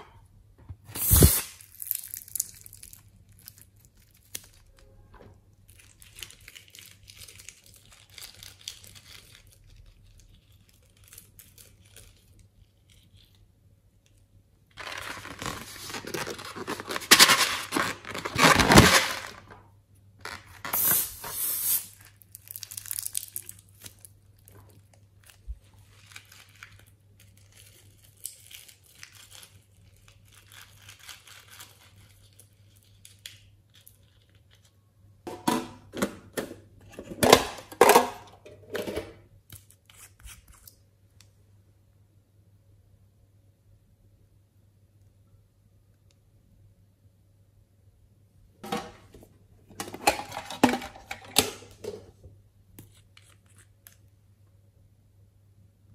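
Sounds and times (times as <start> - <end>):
scissors cutting balloons: 1.0 - 1.6
rubber crinkling and tearing: 14.7 - 19.6.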